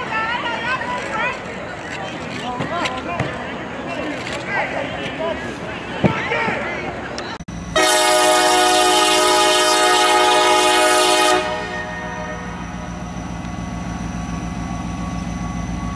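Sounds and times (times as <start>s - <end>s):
loud horn blast: 7.8s - 12.7s.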